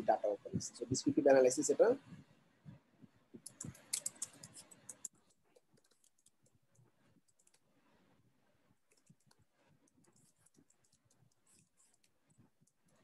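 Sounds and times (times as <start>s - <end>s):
typing on computer keyboard: 3.4s - 7.6s, 8.9s - 13.0s.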